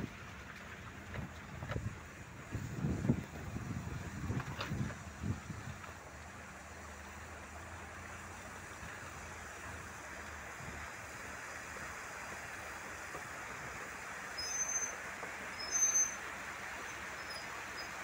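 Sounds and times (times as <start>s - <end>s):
tyre and wind noise: 0.0s - 6.1s
low engine hum: 0.0s - 18.0s.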